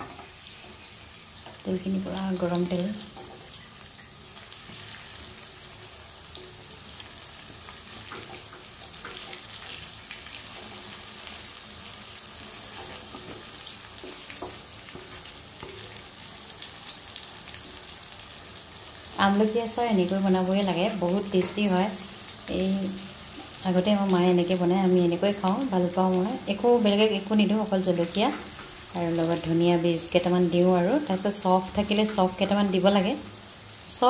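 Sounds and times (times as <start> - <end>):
food sizzling in hot oil: 0.0 - 34.0
wooden spatula stirring: 12.3 - 16.1.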